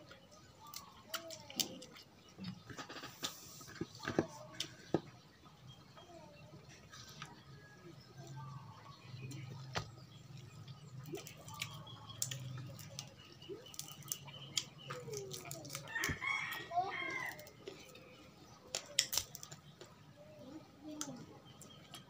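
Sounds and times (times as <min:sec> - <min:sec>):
crispy fried food crunching: 0:09.0 - 0:20.1.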